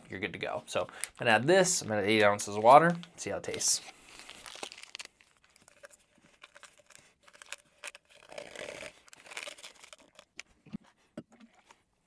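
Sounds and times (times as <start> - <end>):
wrapper crinkling and tearing: 3.4 - 10.5.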